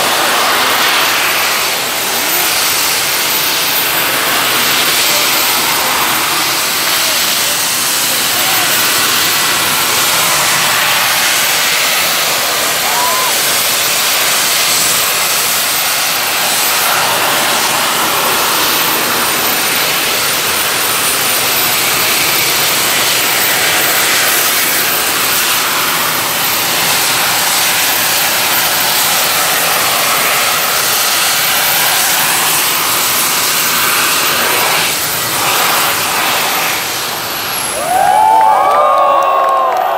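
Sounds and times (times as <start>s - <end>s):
jet turbines rushing and whining: 0.0s - 39.9s
crowd shouting and cheering: 12.4s - 13.7s, 37.6s - 39.9s.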